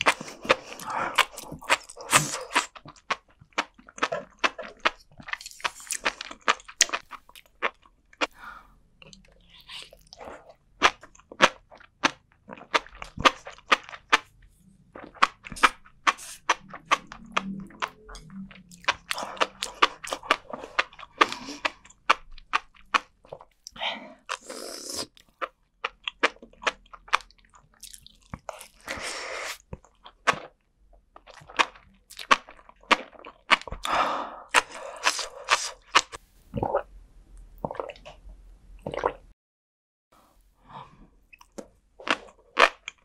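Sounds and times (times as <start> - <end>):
chewing with crunches and pops: 0.0 - 8.3, 9.0 - 36.9, 37.6 - 38.2, 41.3 - 43.0.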